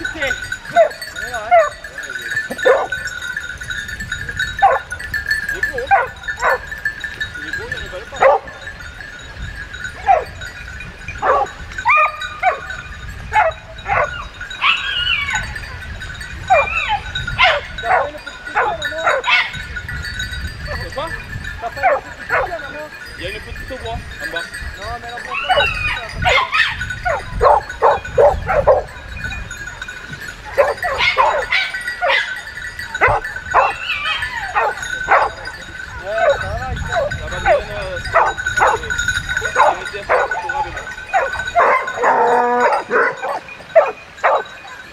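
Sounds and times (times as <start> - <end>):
dog yipping and barking: 2.6 - 3.0, 4.6 - 4.9, 5.9 - 6.7, 8.2 - 8.5, 10.0 - 10.4, 11.2 - 15.6, 16.5 - 19.6, 21.8 - 22.5, 25.3 - 29.0, 30.5 - 35.5, 38.2 - 38.8, 39.6 - 40.5, 41.1 - 44.6.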